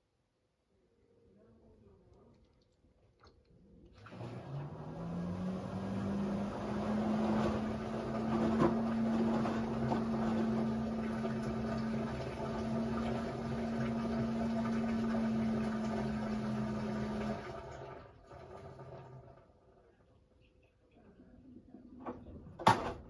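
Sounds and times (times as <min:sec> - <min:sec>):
washing machine motor whirring: 0:03.9 - 0:19.9.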